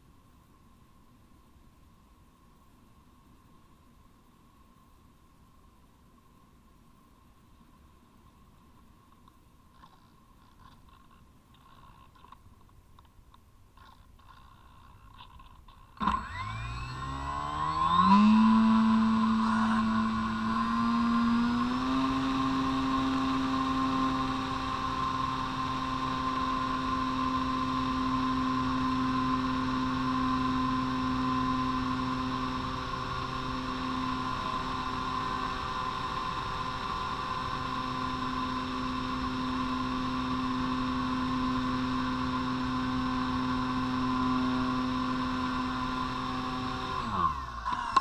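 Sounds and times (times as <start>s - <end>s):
faint wind and rattle: 0.0s - 16.7s
electric motor and propeller whine: 13.8s - 48.0s.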